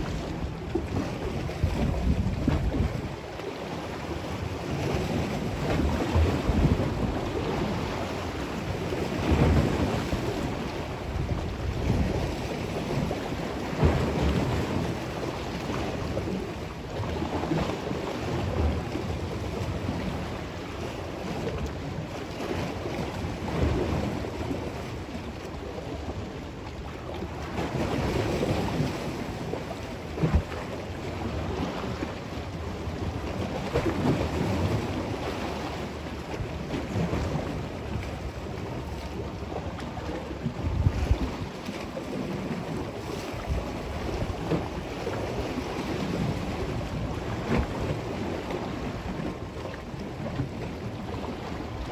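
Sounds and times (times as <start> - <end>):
wind buffeting microphone: 0.0 - 26.3, 27.1 - 51.9
choppy lake waves: 0.0 - 51.9.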